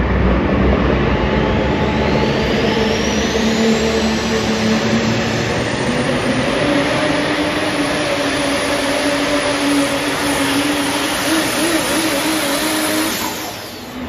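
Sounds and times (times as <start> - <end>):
vehicle engine at full throttle: 0.0 - 14.0
thin high whistle: 11.3 - 14.0.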